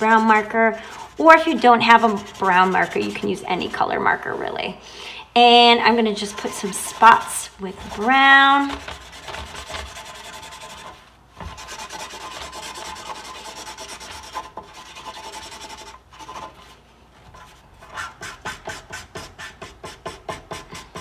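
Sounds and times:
marker scribbling on paper towel: 0.0 - 3.4, 6.2 - 16.7.

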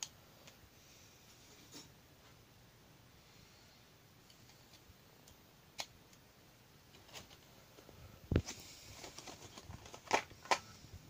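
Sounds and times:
plastic and cardboard crinkling: 7.0 - 10.7.

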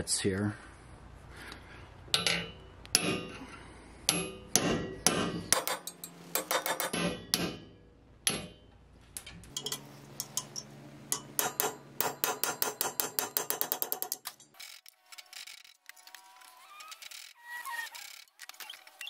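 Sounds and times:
hammer striking steel punch: 2.1 - 3.4, 4.1 - 8.7, 11.1 - 14.2.

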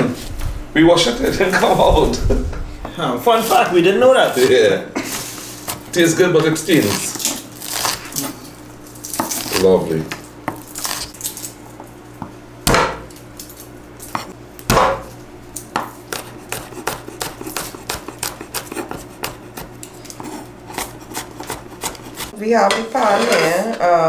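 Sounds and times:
knife chopping on wooden board: 12.2 - 13.1, 14.1 - 22.4.

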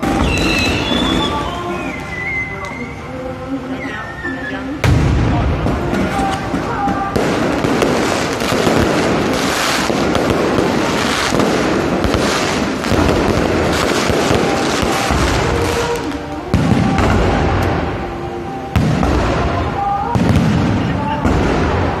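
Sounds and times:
fireworks bangs: 0.0 - 22.0
fireworks crackling and popping: 0.0 - 22.0.

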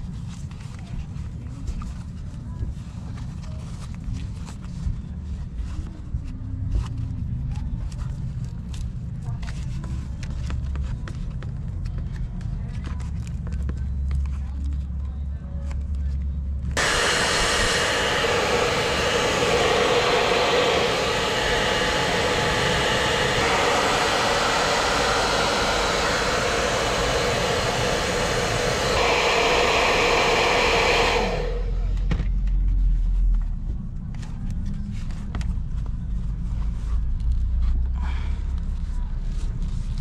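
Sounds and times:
hot-air blower running: 16.8 - 32.3
low hum: 16.8 - 32.7.

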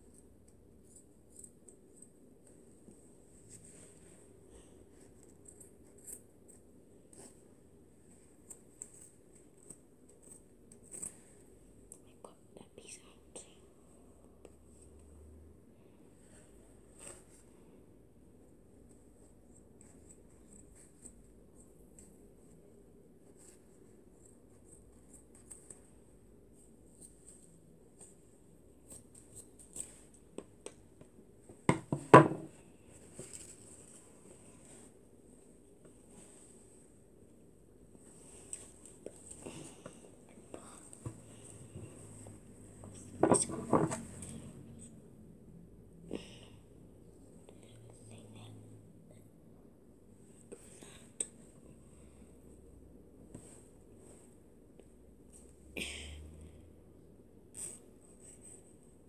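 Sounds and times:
faint rustling and handling clicks: 18.8 - 44.4
knocks and rubs on microphone: 31.6 - 32.6, 43.0 - 44.2.

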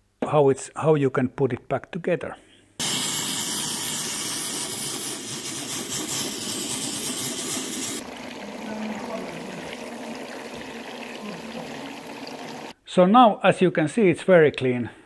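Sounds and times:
steam cleaner hissing: 2.8 - 8.0
running dripping water: 8.0 - 12.8.

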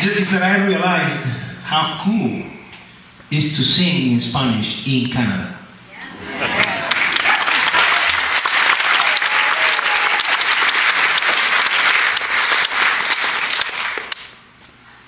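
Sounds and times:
audience applauding: 6.4 - 14.4.

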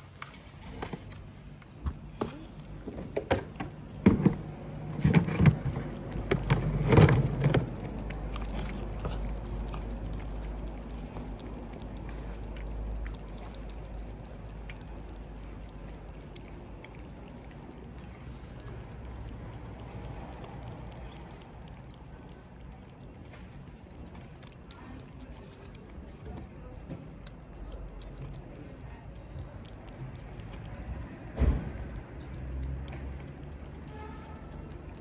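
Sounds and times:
cats eating clicks: 1.1 - 35.0.

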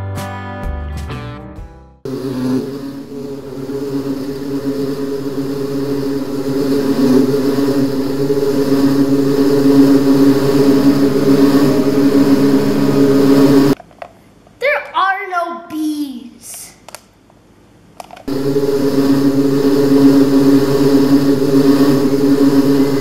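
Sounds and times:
bee swarm buzzing: 2.1 - 13.8, 18.3 - 23.0.

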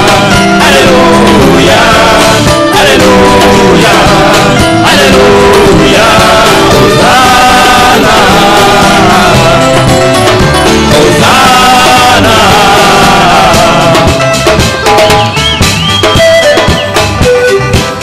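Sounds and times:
men singing gospel through microphones: 0.0 - 14.4.

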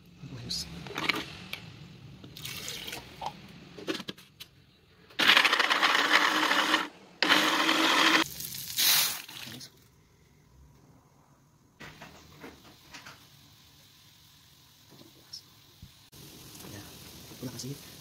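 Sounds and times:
blender grinding: 5.2 - 8.3.

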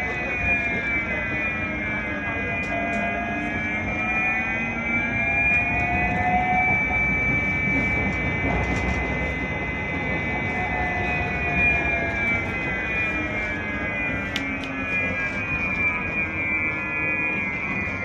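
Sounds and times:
tram interior rumble: 0.0 - 18.0
whining tones: 0.0 - 18.0.

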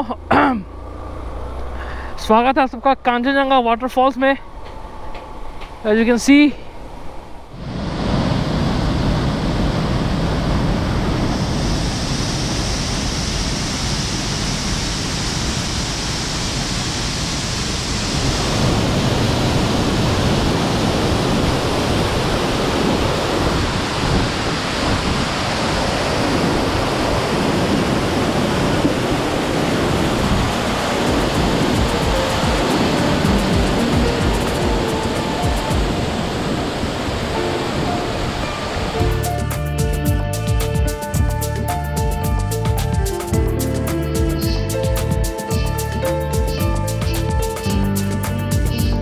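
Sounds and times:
waterfall rushing: 7.6 - 41.2.

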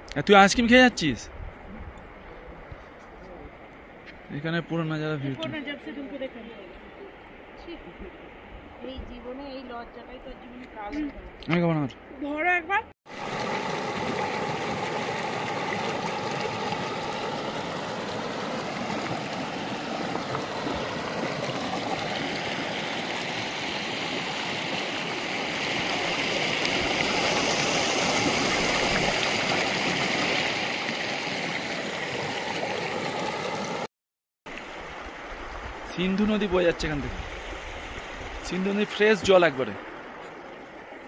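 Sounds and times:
river current rushing: 13.1 - 33.9, 34.5 - 41.0.

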